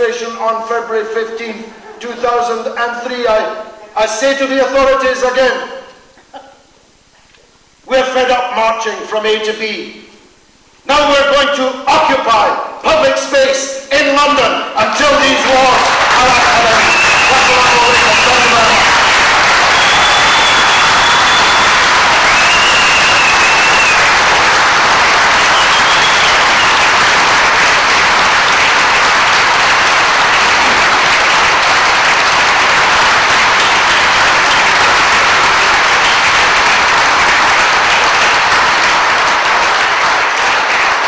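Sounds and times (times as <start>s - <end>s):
audience applauding: 15.0s - 41.0s.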